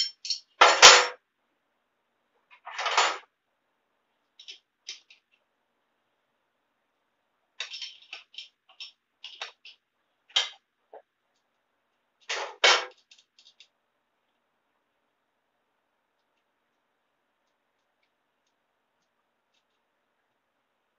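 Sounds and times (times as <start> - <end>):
tools clinking on metal: 0.0 - 0.7, 7.6 - 9.8.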